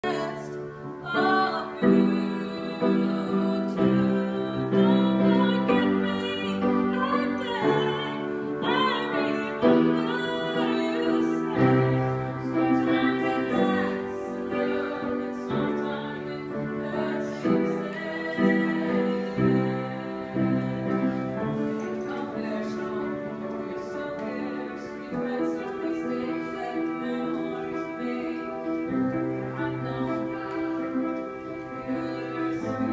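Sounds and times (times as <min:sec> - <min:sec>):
piano chords: 0:00.0 - 0:32.9
woman singing: 0:00.0 - 0:32.9.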